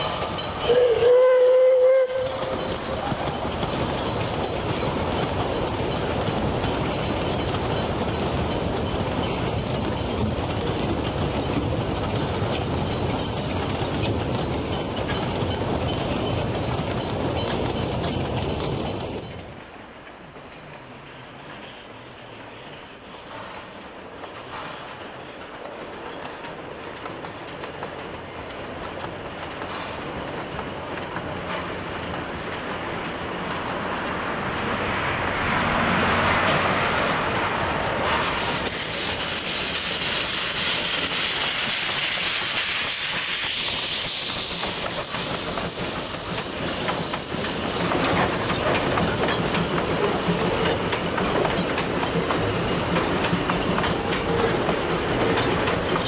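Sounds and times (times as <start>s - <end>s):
hiss of steam: 0.0s - 5.6s, 12.8s - 15.3s, 21.1s - 25.4s, 29.6s - 30.2s, 37.3s - 56.0s
steam locomotive chuffing: 0.0s - 19.6s, 22.5s - 56.0s
carriages rattling over rail joints: 0.0s - 56.0s.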